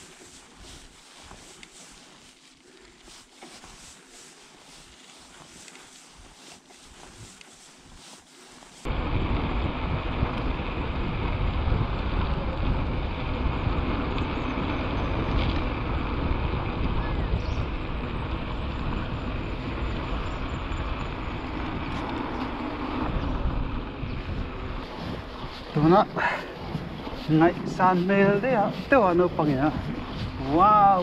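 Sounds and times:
wind buffeting microphone: 8.8 - 31.0
low rolling rumble: 8.9 - 31.0.

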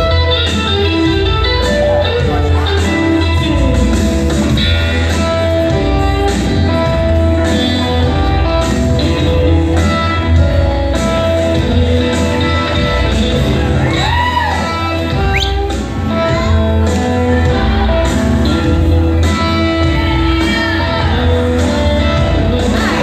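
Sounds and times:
blues guitar and bass music: 0.0 - 23.0.

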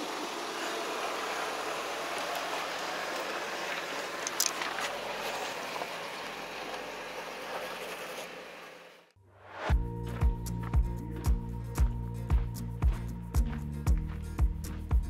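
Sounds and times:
tyres on rock and gravel: 0.6 - 8.9
stones clicking: 4.2 - 5.0.

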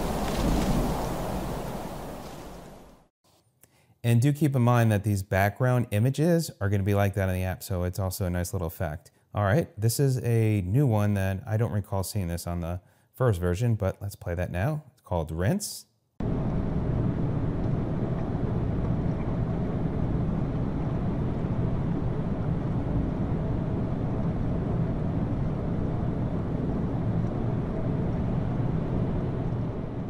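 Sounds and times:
steady rushing noise: 0.0 - 3.0, 16.2 - 30.0.

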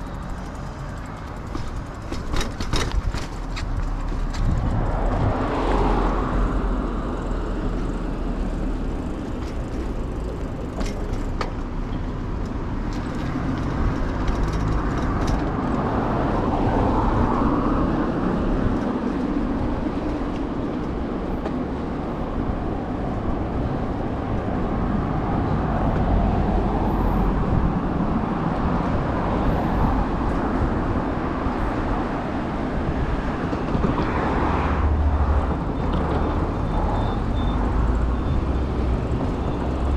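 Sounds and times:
bicycle rolling on stone paving: 0.0 - 5.1
passing city traffic: 0.0 - 39.9.

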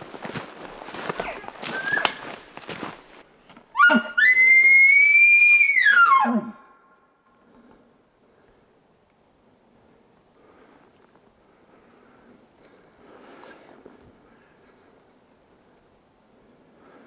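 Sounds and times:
brush crackling underfoot: 0.0 - 3.7
elk bugling: 3.7 - 6.7.

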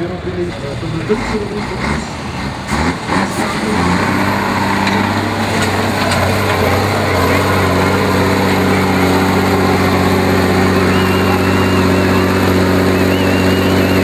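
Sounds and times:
diesel truck engine droning: 0.0 - 14.0.

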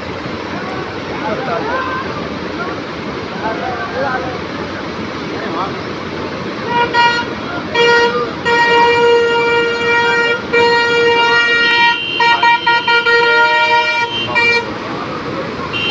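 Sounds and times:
rush of floodwater: 0.0 - 15.9
vehicle horn honking: 6.7 - 14.7, 15.7 - 15.9.

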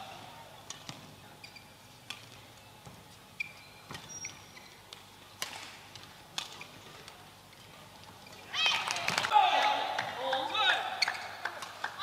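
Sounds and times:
shoes squeaking on court: 0.7 - 5.8, 6.4 - 9.2, 10.9 - 11.4.

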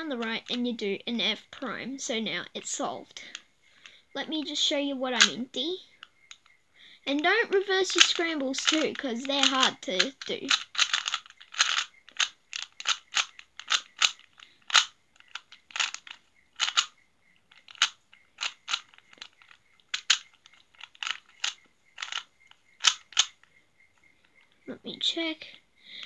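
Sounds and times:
puzzle cube plastic clicks: 2.6 - 4.0, 6.0 - 6.5, 7.1 - 24.6.

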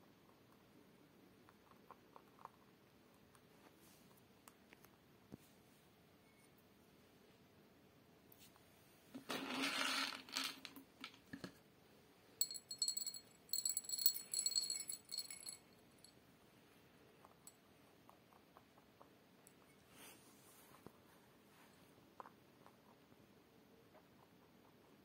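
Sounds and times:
rabbit eating crunches: 0.0 - 5.6, 16.9 - 25.0
rustling scrape: 9.2 - 10.6, 19.9 - 21.9
pellets clinking in a glass bowl: 12.4 - 15.6.

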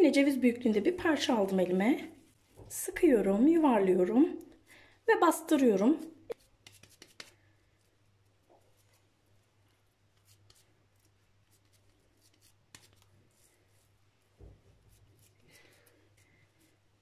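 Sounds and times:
hands kneading minced meat: 6.3 - 17.0.

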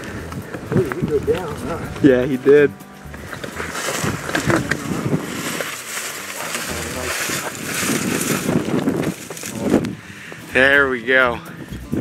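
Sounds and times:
wind on microphone: 0.0 - 2.0, 3.2 - 10.5, 11.5 - 12.0
footsteps through snowy grass: 3.4 - 9.8
clothing rustling: 3.5 - 9.7.

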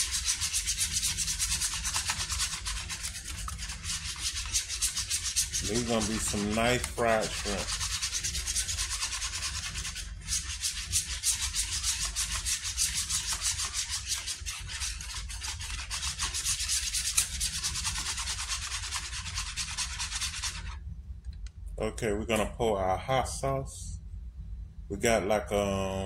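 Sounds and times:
whisk beating eggs in bowl: 0.0 - 20.8.

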